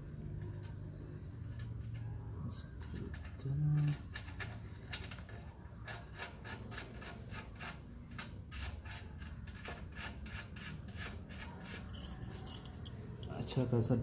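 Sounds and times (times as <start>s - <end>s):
light metallic clatter: 11.8s - 13.4s.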